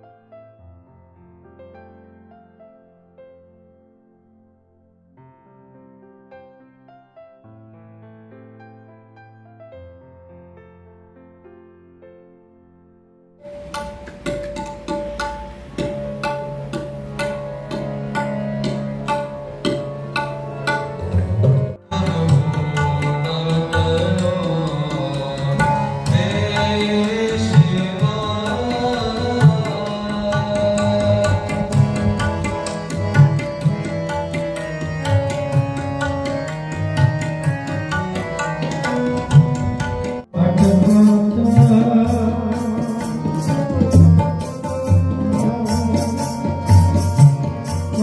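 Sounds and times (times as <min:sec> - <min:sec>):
harmonium chords: 0:13.4 - 0:48.0
tabla strokes: 0:13.4 - 0:48.0.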